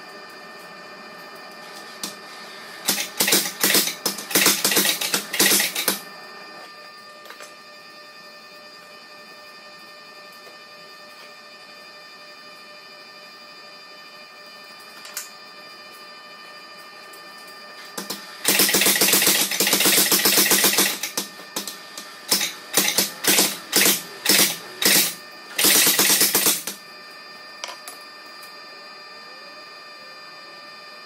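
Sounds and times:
steady hum with held tones: 0.0 - 31.0
power hammer striking steel: 2.8 - 6.0, 22.3 - 26.8.

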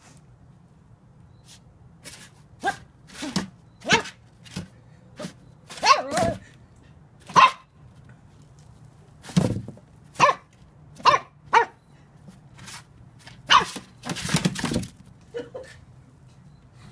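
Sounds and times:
puppy yapping: 5.2 - 6.4, 7.3 - 7.7, 10.2 - 11.8, 13.5 - 13.8.

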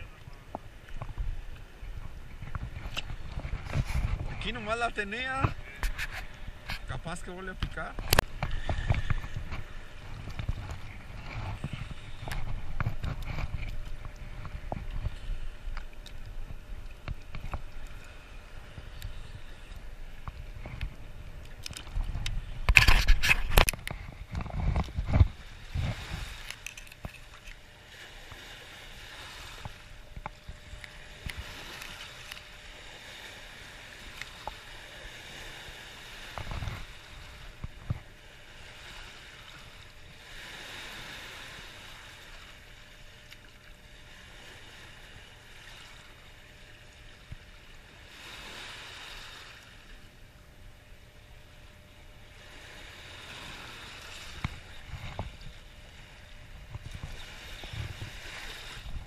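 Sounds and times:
fishing tackle clicks: 26.4 - 27.6.

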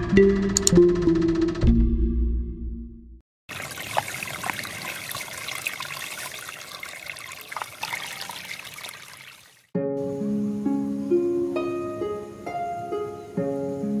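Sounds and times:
water trickling and splashing: 3.5 - 9.7.

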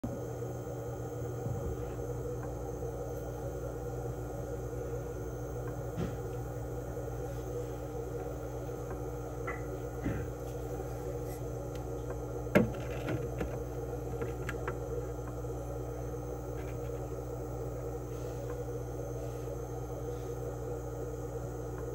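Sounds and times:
aquarium air pump humming: 0.0 - 21.9.

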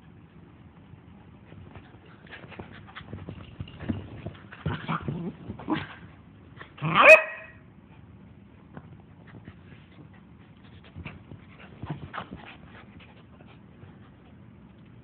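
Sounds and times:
dogs scuffling: 1.4 - 6.1
dog yelping: 6.8 - 7.5.

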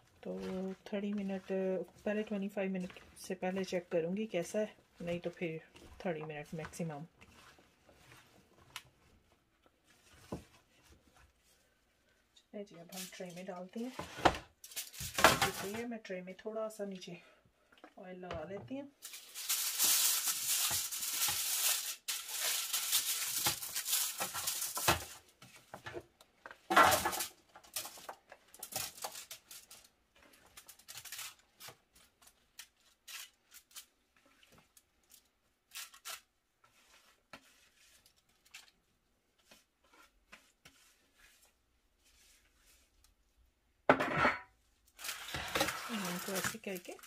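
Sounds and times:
foil crinkling: 14.6 - 15.8, 19.0 - 25.3, 26.7 - 38.8, 44.9 - 47.0.

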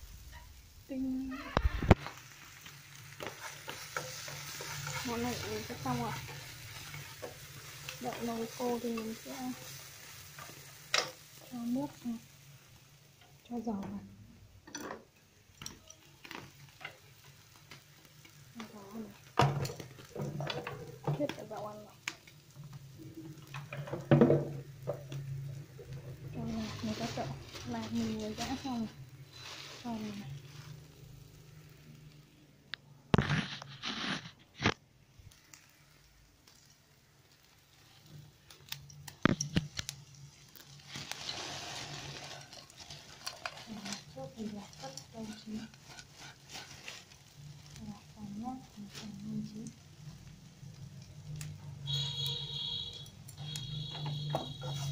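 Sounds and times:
fish cake frying in a pan: 0.0 - 54.9
steady hiss: 0.0 - 54.9
utensil scraping against pan: 1.8 - 11.2, 33.2 - 34.7, 40.6 - 48.0, 53.4 - 54.9.

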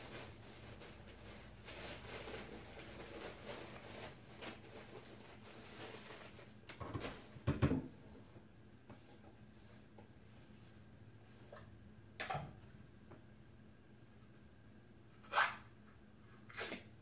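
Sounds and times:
soft rustling and handling: 0.0 - 7.4.

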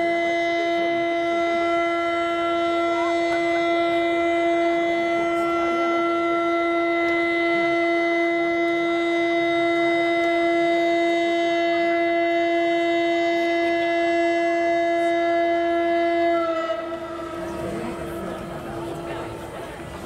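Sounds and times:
faint crowd murmur: 0.0 - 20.0.

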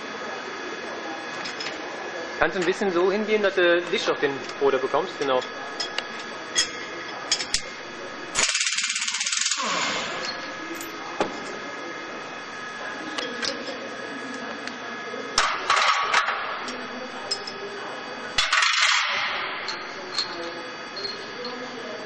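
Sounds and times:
steady background hum: 0.0 - 22.0
pneumatic impact wrench hammering: 8.3 - 10.4.

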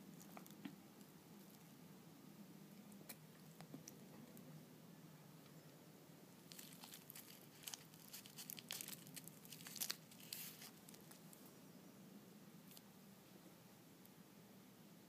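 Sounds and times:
seaweed sheet crinkling: 6.5 - 11.4.

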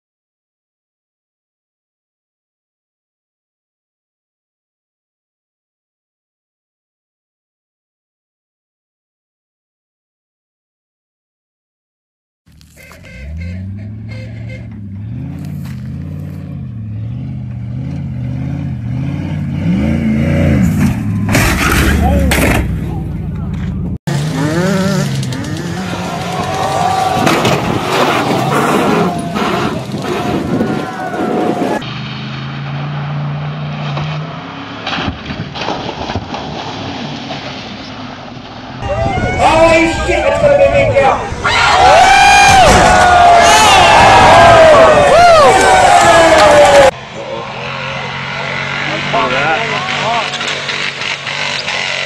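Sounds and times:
truck engine revving: 12.6 - 38.8, 44.0 - 52.0
truck splashing through mud: 24.1 - 38.8.

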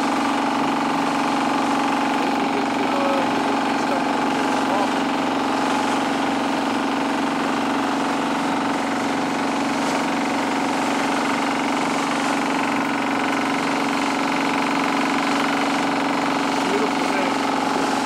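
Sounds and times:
boat engine droning: 0.0 - 18.0.

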